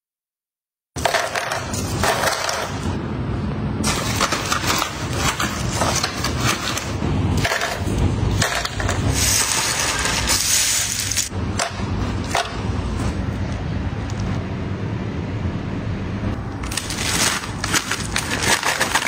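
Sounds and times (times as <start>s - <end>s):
dried treats crackling and crunching: 16.6s - 19.0s.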